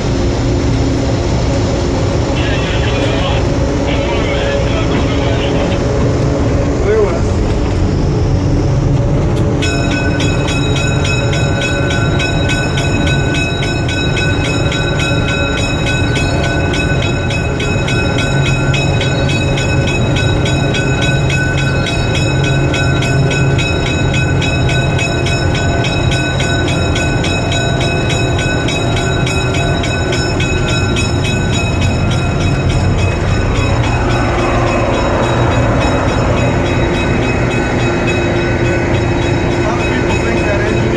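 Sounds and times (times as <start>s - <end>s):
diesel locomotive rumbling: 0.0s - 40.9s
thin steady high tone: 9.6s - 40.9s.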